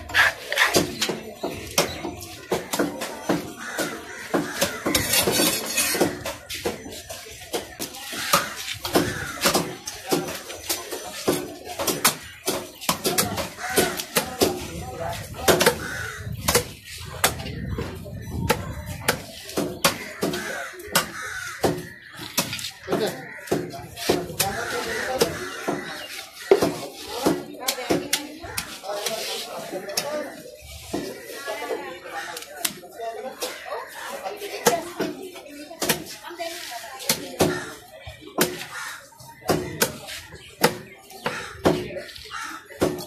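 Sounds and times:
knives chopping on wooden blocks: 0.1s - 6.8s, 7.5s - 29.2s, 38.4s - 43.0s.

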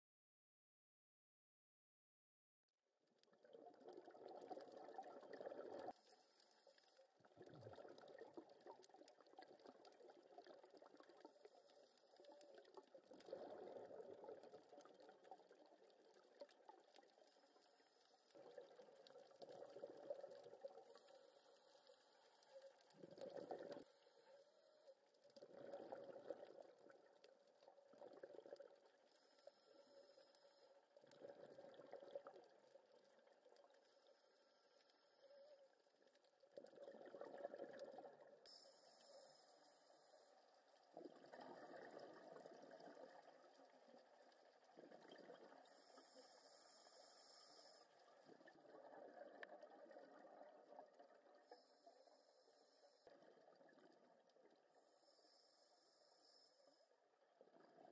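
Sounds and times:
muffled underwater exhaust bubbles: 22.8s - 24.0s.

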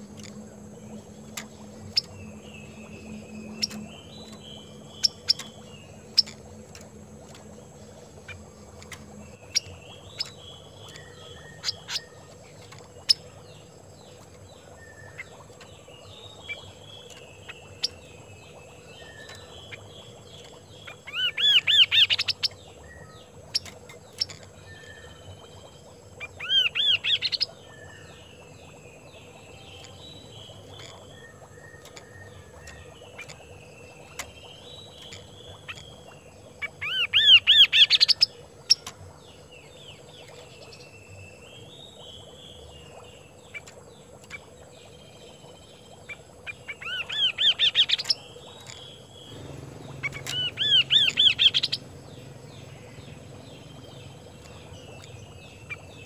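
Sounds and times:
bird song bursts: 0.9s - 6.4s, 9.2s - 43.6s, 44.3s - 56.0s
bird chattering and warbling: 14.2s - 25.5s, 26.2s - 28.1s, 34.0s - 39.0s, 46.1s - 56.0s.

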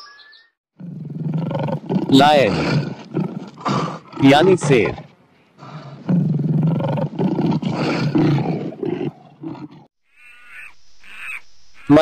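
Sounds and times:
lion roaring and grunting: 0.8s - 9.9s
high-pitched animal call: 10.1s - 12.0s.

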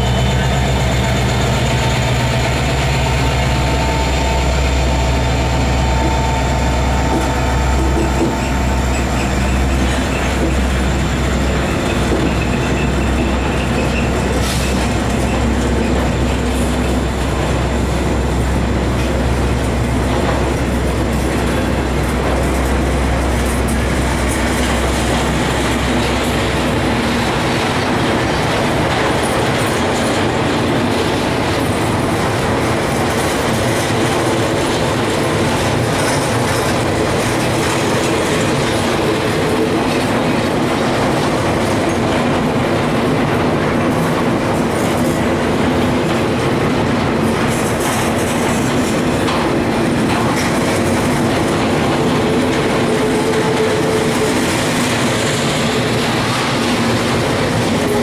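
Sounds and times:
clickety-clack over rail joints: 0.0s - 58.0s
steel wheels rumbling on rail: 0.0s - 58.0s.

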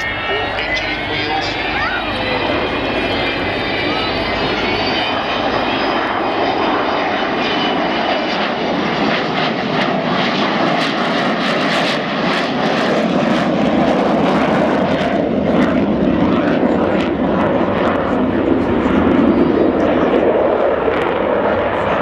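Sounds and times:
jet roar crackling: 0.0s - 15.0s
jet engine whine: 0.0s - 22.0s.

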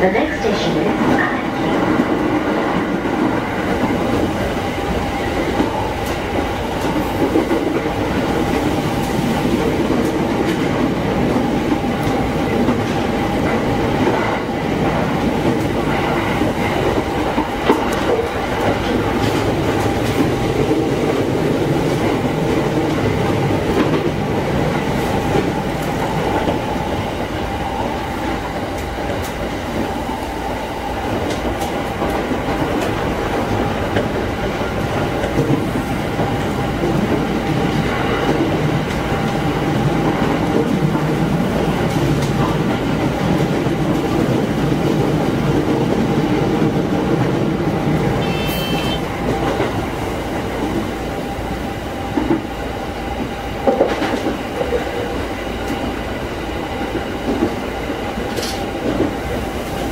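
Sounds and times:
train wheels on rails: 0.0s - 59.9s
train motor whine: 48.1s - 49.2s.

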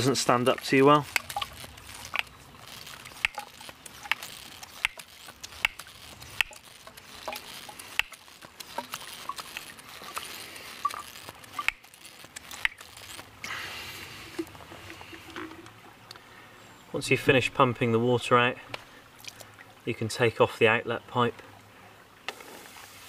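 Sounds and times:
hand pump water filter squeaky clicks: 0.0s - 13.4s
shallow stream rushing: 0.0s - 16.0s.

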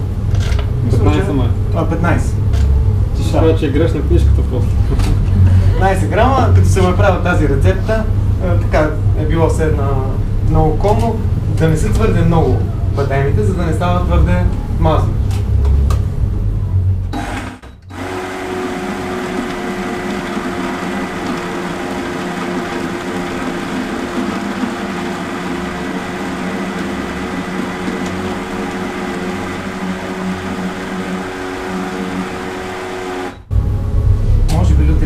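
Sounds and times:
electric blender whirring: 17.1s - 33.5s.

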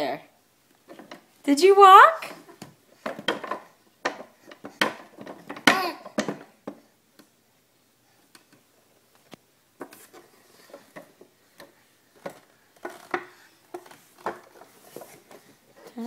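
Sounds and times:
wooden push cart knocking on floor: 2.5s - 6.8s.

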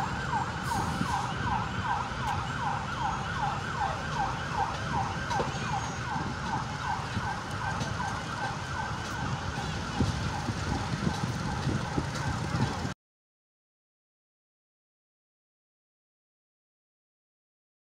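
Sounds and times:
emergency siren sweeping: 0.0s - 13.0s
heavy road vehicles rumbling: 0.0s - 13.0s.

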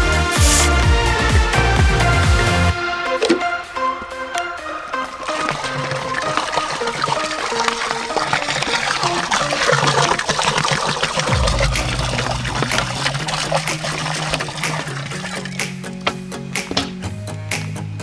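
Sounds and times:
background music: 0.0s - 10.3s, 11.3s - 18.0s
soda pouring and splashing: 0.4s - 0.8s, 4.4s - 16.0s.

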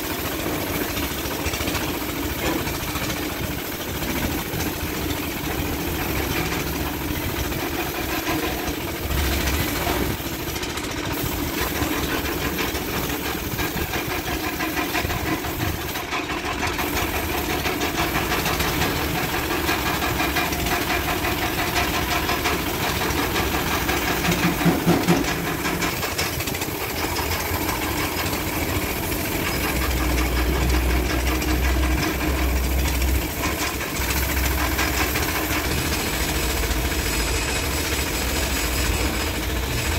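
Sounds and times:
paint spray gun hissing: 0.0s - 39.6s
air compressor chugging: 0.0s - 39.9s.

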